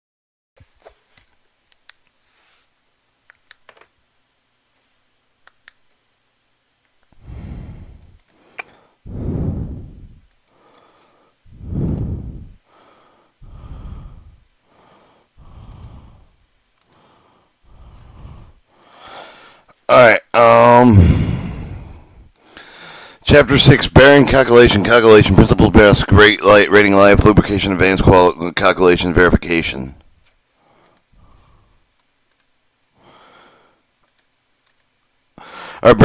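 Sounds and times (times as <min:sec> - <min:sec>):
loud breathing close to microphone: 0:07.2 - 0:19.7, 0:20.9 - 0:23.2, 0:30.6 - 0:31.8, 0:35.4 - 0:35.9
faint clicks: 0:08.0 - 0:08.8, 0:15.7 - 0:16.0, 0:16.7 - 0:17.0, 0:30.2 - 0:31.1, 0:32.0 - 0:32.6, 0:34.0 - 0:35.1.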